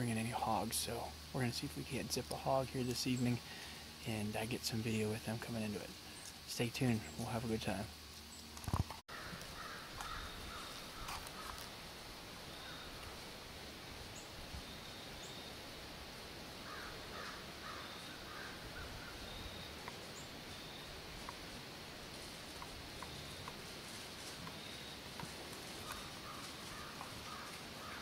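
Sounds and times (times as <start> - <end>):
steady hiss: 0.0 - 28.0
faint animal calls: 9.1 - 11.7, 16.6 - 21.6, 22.2 - 28.0.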